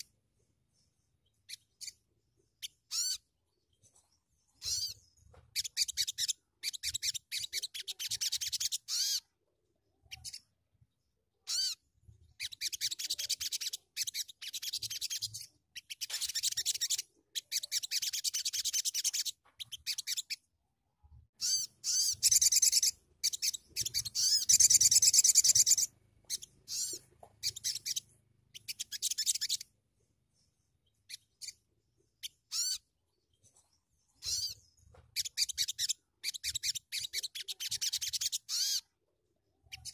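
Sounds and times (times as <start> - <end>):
songbird twittering: 2.6 - 9.2, 21.4 - 29.7, 30.4 - 38.9.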